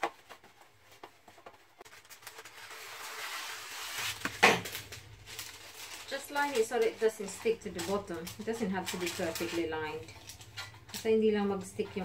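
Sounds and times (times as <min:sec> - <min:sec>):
parchment paper rustling: 0:00.0 - 0:11.1
paper tearing: 0:01.9 - 0:07.0.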